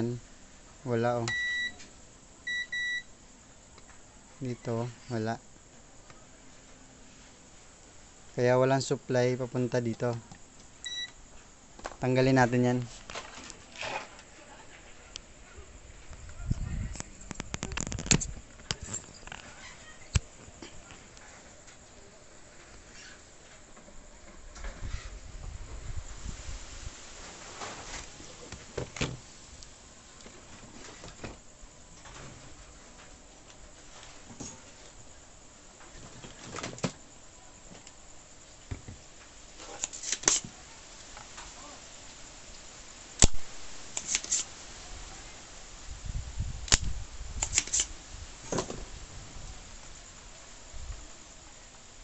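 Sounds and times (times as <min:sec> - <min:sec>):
soldering iron set in stand: 0:44.0 - 0:44.5.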